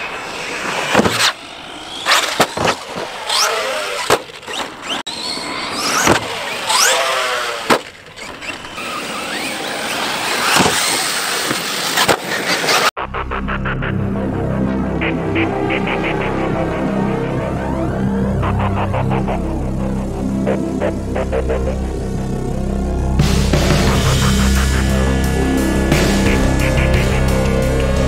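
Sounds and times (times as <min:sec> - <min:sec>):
electric toy truck motors whining: 0:00.4 - 0:12.9.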